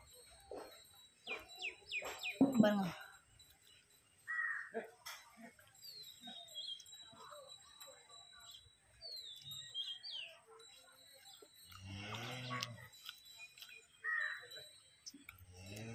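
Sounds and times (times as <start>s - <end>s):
birds chirping: 0.0s - 15.9s.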